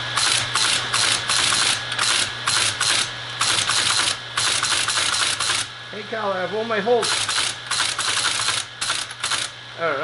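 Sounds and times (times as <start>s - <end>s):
teletype motor hum: 0.0s - 10.0s
teletype clattering: 0.2s - 5.7s, 7.0s - 9.5s.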